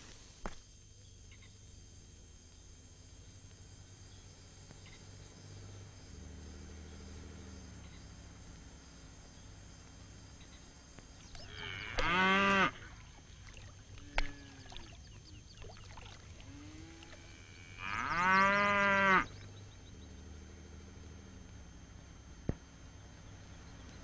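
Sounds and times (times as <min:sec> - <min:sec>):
water buffalo lowing: 0:11.4 - 0:15.0.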